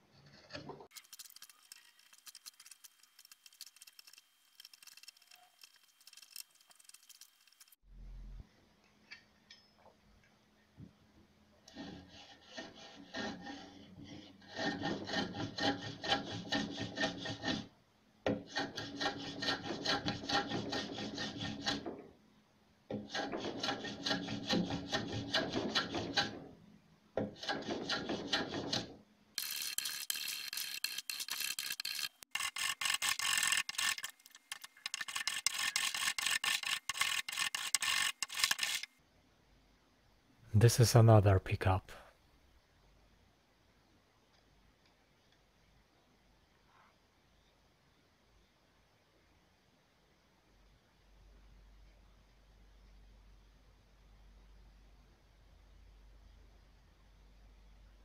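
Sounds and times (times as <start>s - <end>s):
hand file scraping wood: 11.6s - 17.7s, 18.3s - 22.1s, 22.9s - 26.5s, 27.2s - 38.9s.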